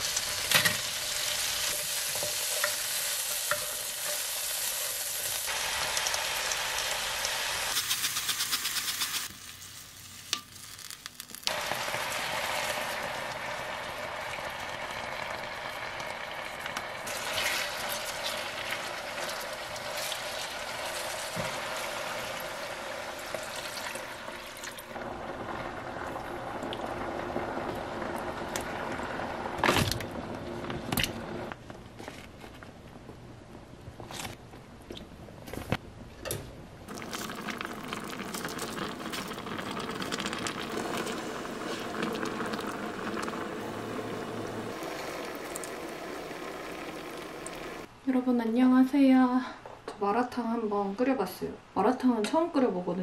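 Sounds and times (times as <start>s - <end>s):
broth bubbling in a pot: 11.5s - 29.6s, 36.9s - 47.9s
liquid pouring: 36.9s - 47.9s.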